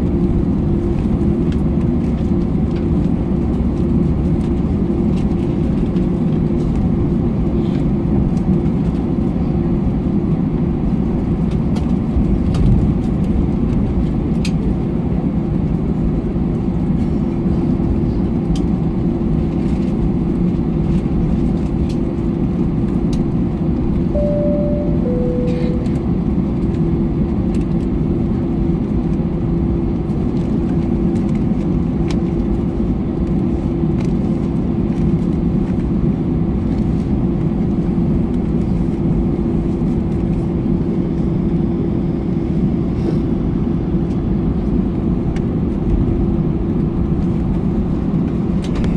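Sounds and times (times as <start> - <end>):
aircraft cabin engine hum: 0.0 - 48.9
two-note falling cabin chime: 24.2 - 26.2.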